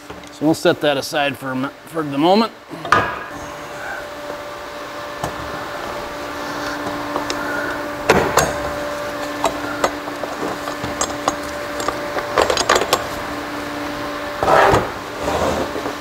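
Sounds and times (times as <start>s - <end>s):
shop fan humming: 0.0s - 16.0s
steel parts clicking and scraping: 9.4s - 13.2s.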